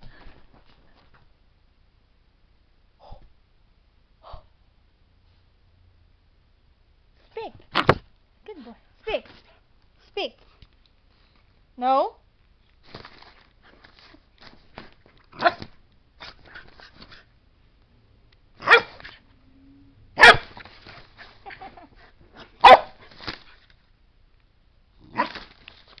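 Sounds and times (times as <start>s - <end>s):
puppy barking: 15.4s - 15.7s, 18.6s - 19.1s, 20.2s - 20.6s, 22.6s - 23.0s.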